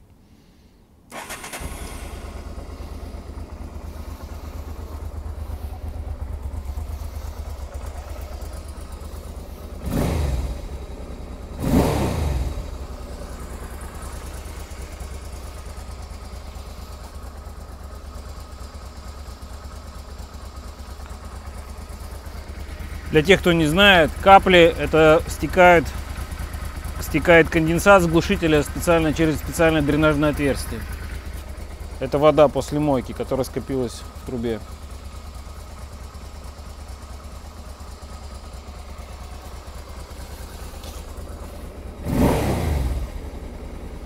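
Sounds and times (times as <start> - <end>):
motorcycle engine idling: 0.0 - 44.0
engine throttle blips: 1.1 - 19.4, 37.8 - 44.0.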